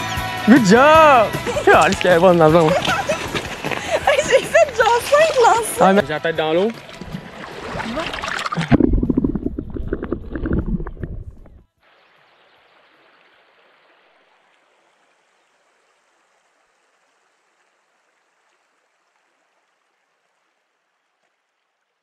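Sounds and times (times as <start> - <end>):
river water rushing: 0.6 - 10.9.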